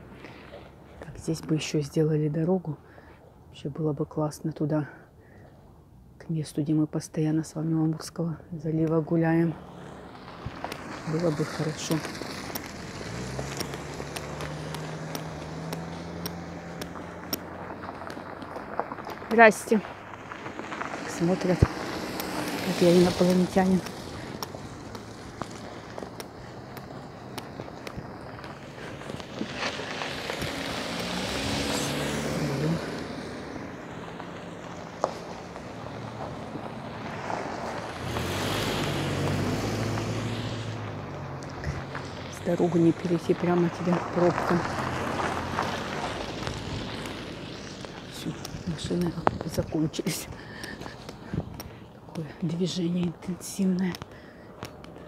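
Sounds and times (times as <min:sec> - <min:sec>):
car engine humming: 0:00.0 - 0:01.5, 0:08.9 - 0:55.0
vehicle driving past: 0:09.3 - 0:52.0
footsteps on hard pavement: 0:11.8 - 0:32.1, 0:32.9 - 0:40.2, 0:44.3 - 0:52.0.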